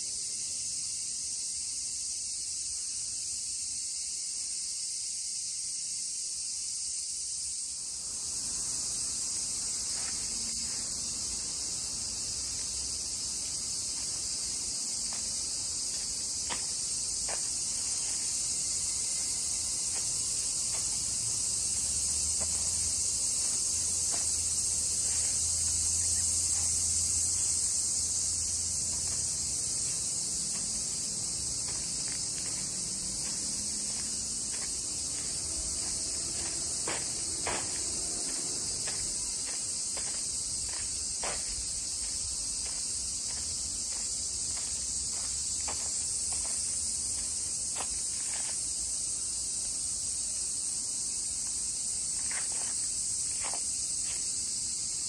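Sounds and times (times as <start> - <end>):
insects singing: 0.0 - 55.0
footsteps on gravel: 9.6 - 48.6.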